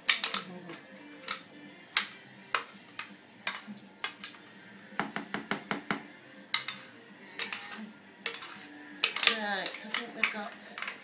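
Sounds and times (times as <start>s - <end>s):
utensils clinking against bowl: 0.0s - 1.4s, 6.5s - 11.0s.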